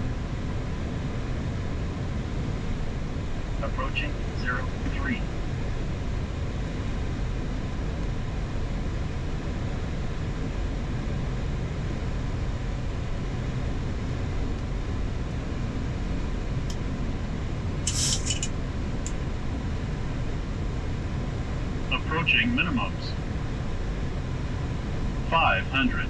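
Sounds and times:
aircraft cockpit airflow and engines: 0:00.0 - 0:26.0.

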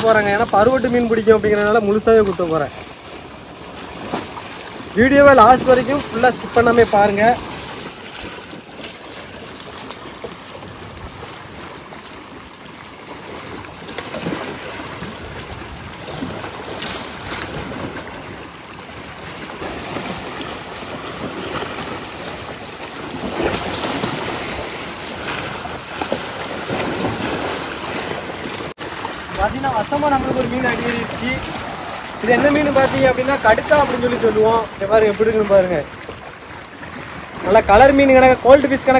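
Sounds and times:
waves splashing against rocks: 0:00.0 - 0:38.9.

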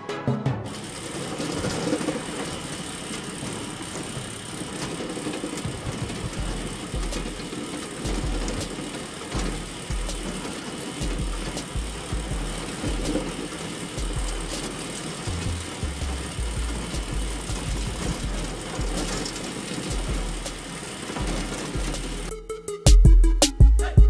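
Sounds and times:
small electric motor running: 0:00.7 - 0:22.3
low rumbles: 0:15.4 - 0:19.3.

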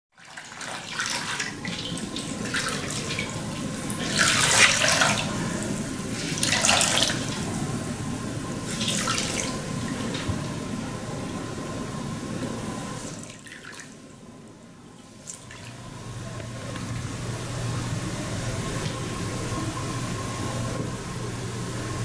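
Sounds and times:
water splashing into plastic basin: 0:00.2 - 0:05.4, 0:06.2 - 0:07.5, 0:08.6 - 0:10.5.

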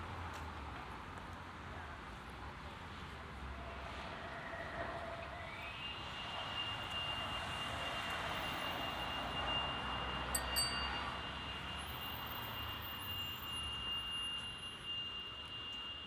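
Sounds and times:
street traffic: 0:00.0 - 0:16.0
high-pitched ringing tone: 0:08.4 - 0:16.0.

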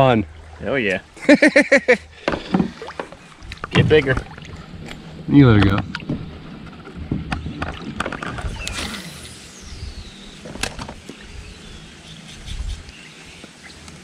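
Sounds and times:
bumps against kayak hull: 0:02.2 - 0:04.4.

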